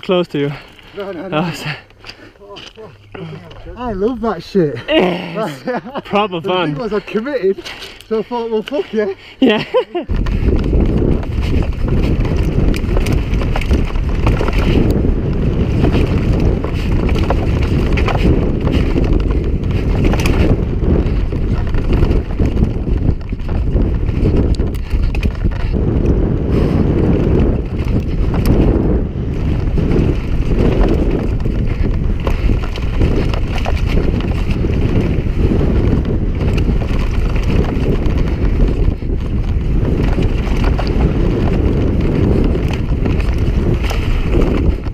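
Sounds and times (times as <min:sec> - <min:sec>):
wind noise on microphone: 0:00.0 - 0:44.9
bike rattling over rocks: 0:10.1 - 0:44.9.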